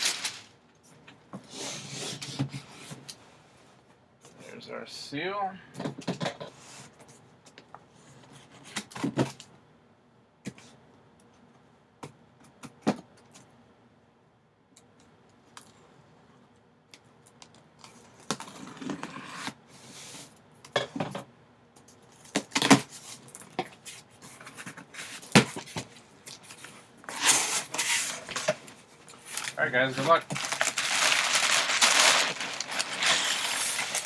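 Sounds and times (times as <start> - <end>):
packing paper rustling: 0.0 - 0.6, 26.4 - 34.0.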